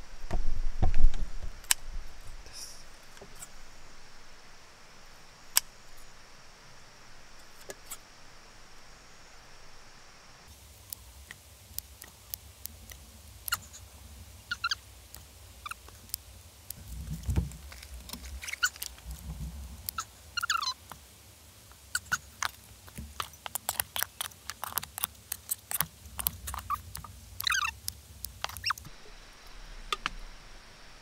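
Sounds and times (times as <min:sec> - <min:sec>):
squeaks of rubbery flesh: 0:14.5 - 0:14.8, 0:17.2 - 0:19.2, 0:19.8 - 0:20.8, 0:21.9 - 0:27.8, 0:28.4 - 0:28.9
scissors snipping: 0:22.0 - 0:28.9.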